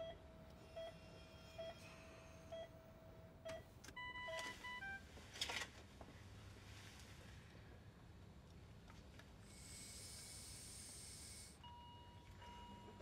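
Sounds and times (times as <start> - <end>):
faint monitor beeping: 0.0 - 2.8, 3.4 - 5.0.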